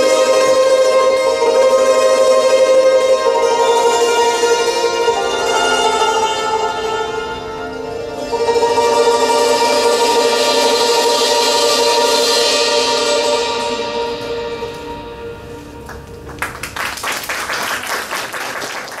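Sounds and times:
hammered dulcimers ringing chord: 0.0 - 16.4
people clapping: 15.8 - 19.0.

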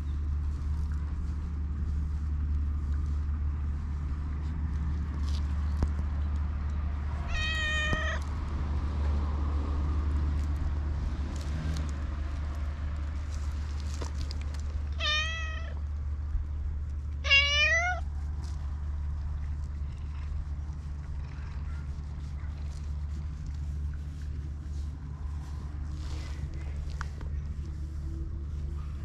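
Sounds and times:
cat meowing: 7.2 - 8.2, 15.0 - 15.8, 17.2 - 18.0.

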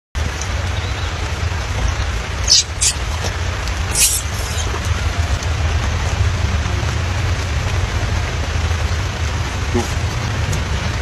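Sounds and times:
constant low rumble: 0.2 - 11.0
steady rain: 0.2 - 11.0
short hissing noises: 3.9 - 4.7.

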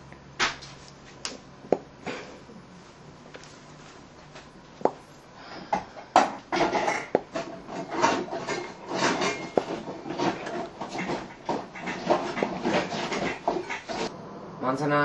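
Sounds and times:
scraping and rubbing: 6.6 - 14.1.

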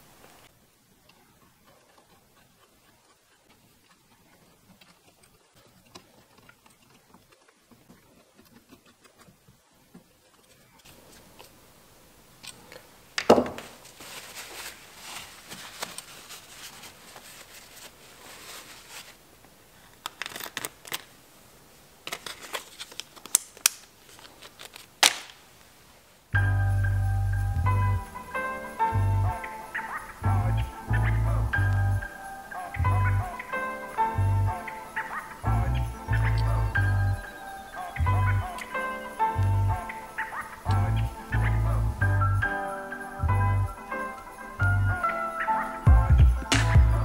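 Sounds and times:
plastic bag crinkling: 12.5 - 21.2, 22.0 - 25.4.

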